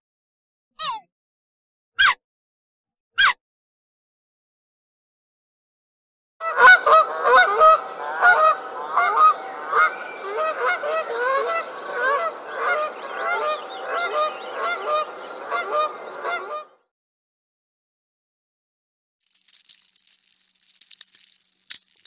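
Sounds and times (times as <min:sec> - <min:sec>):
geese honking: 0:06.4 - 0:16.8.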